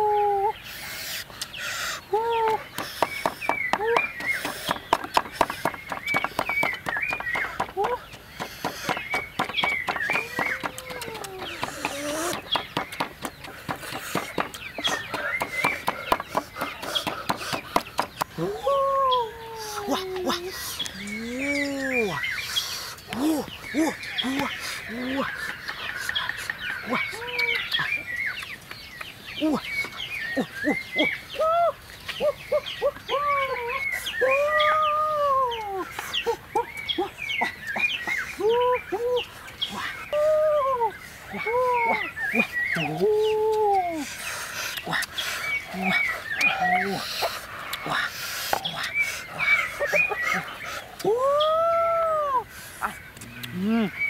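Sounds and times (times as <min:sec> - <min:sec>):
bird calls: 0:00.0 - 0:54.0
wooden pestle pounding in mortar: 0:02.8 - 0:18.3.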